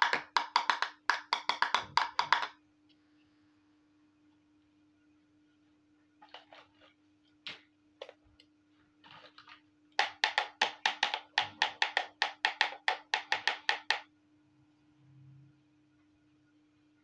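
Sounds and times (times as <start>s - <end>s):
plastic toy pot clacking: 0.0s - 2.6s.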